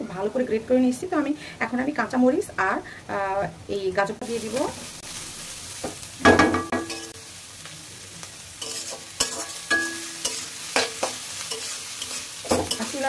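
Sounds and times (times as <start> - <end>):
vegetables sizzling in hot oil: 0.0 - 13.0
spatula scraping a wok: 8.6 - 13.0.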